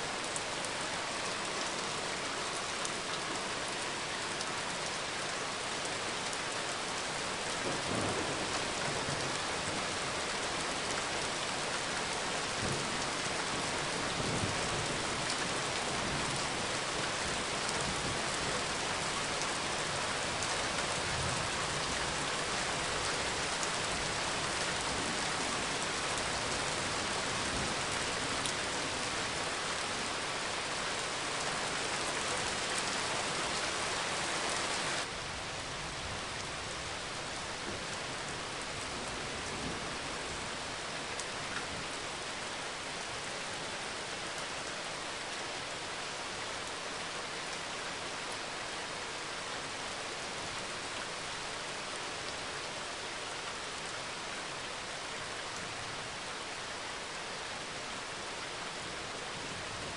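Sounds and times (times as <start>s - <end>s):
steady rain hiss: 0.0s - 59.9s.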